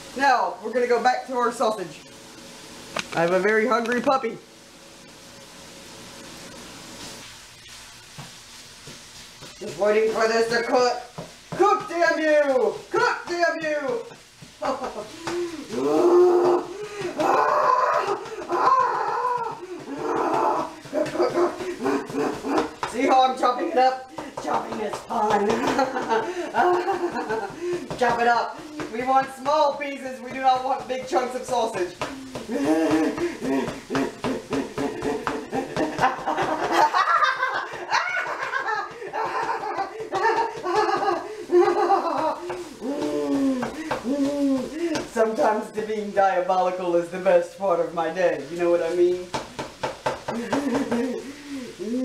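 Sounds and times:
woman laughing theatrically: 0:14.6 - 0:15.7, 0:20.7 - 0:22.8, 0:25.2 - 0:27.9, 0:32.3 - 0:43.8, 0:50.3 - 0:51.4
dog howling and whining: 0:15.7 - 0:20.7.

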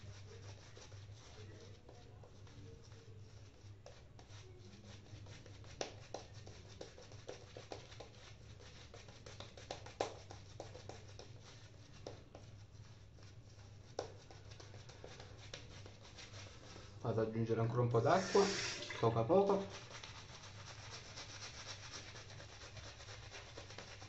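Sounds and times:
shaving brush bristles swishing: 0:00.0 - 0:24.0
low steady hum: 0:10.2 - 0:24.0.

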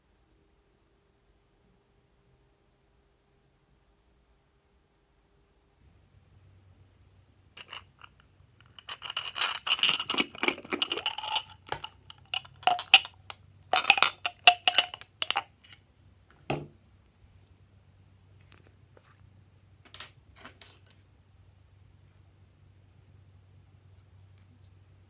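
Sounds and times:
plastic container clicking and rattling: 0:07.6 - 0:15.8.

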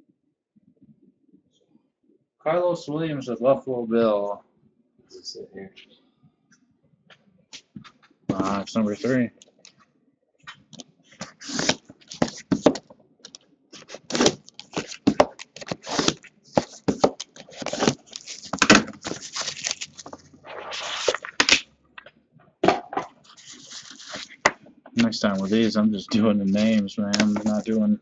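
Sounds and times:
rustling and tearing of wrap: 0:11.2 - 0:12.6, 0:13.8 - 0:21.6, 0:23.2 - 0:24.4, 0:25.0 - 0:25.8
knife cutting cardboard box: 0:11.2 - 0:12.7, 0:13.8 - 0:19.8.

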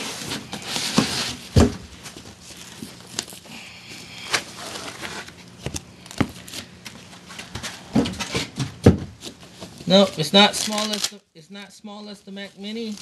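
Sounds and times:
cardboard box knocks and thumps: 0:00.9 - 0:01.9, 0:08.0 - 0:09.2
plastic crinkling: 0:09.7 - 0:11.2, 0:12.3 - 0:13.0.

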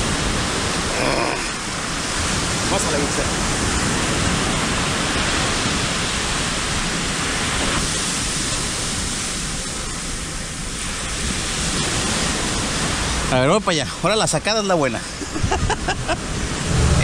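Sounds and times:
ocean surf on a beach: 0:00.0 - 0:17.0
low rumble: 0:16.1 - 0:17.0.

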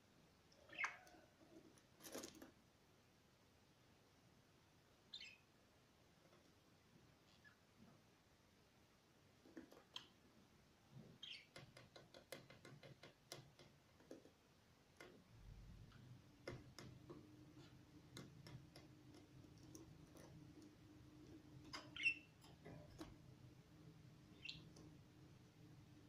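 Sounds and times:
parrot chirping: 0:00.6 - 0:01.2, 0:05.1 - 0:05.4, 0:11.2 - 0:11.6, 0:21.7 - 0:22.4, 0:24.3 - 0:24.8
parrots clicking and ticking: 0:11.2 - 0:23.5.

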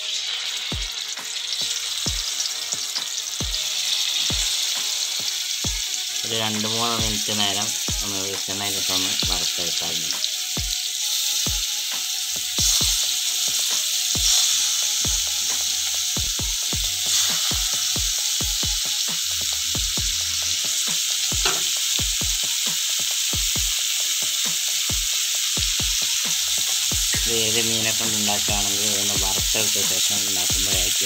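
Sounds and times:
prawns sizzling in hot oil: 0:00.0 - 0:31.0.

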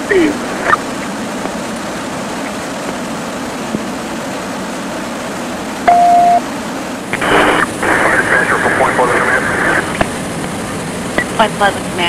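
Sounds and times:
fire engine running: 0:00.0 - 0:12.0
short radio beep: 0:05.9 - 0:06.4.

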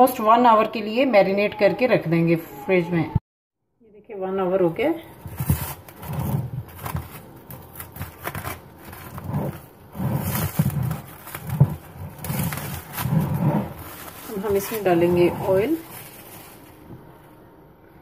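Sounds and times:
cling film crinkling: 0:05.2 - 0:17.0.

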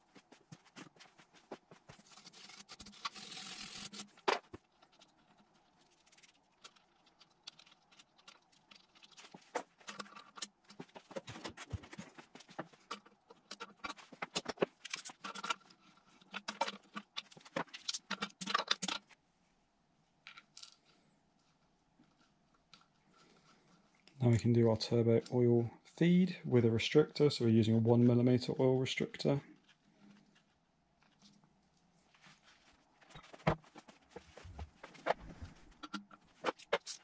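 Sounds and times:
scratchy brushing: 0:00.0 - 0:10.1.

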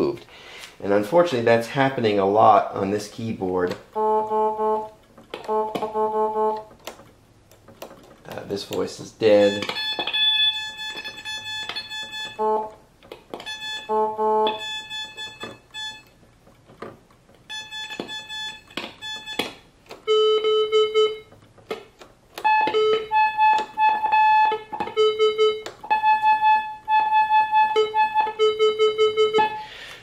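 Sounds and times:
voice tab clicks: 0:03.6 - 0:06.7, 0:08.3 - 0:12.4
synthesizer playing single notes: 0:03.9 - 0:06.7, 0:09.4 - 0:12.8, 0:13.5 - 0:16.1.

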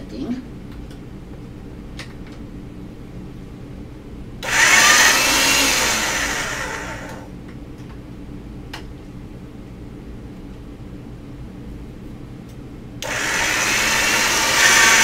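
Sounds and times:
motorized pasta machine running: 0:04.4 - 0:07.3, 0:13.0 - 0:15.0.

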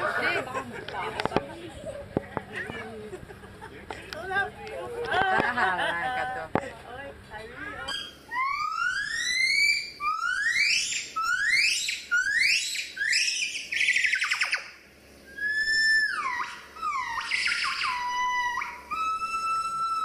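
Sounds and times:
gibbon whooping calls: 0:07.6 - 0:20.0.

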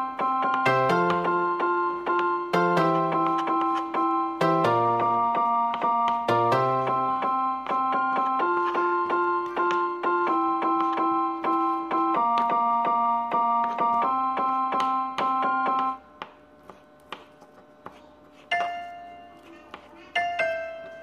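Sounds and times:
electric piano chords: 0:00.0 - 0:16.1.

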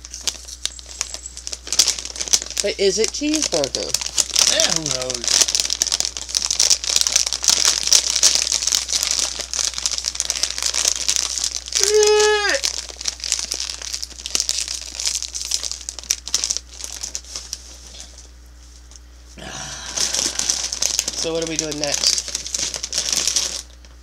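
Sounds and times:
plastic snack bag crinkling: 0:00.0 - 0:18.4, 0:19.4 - 0:24.0
man yawning: 0:11.8 - 0:12.6, 0:19.4 - 0:20.8.

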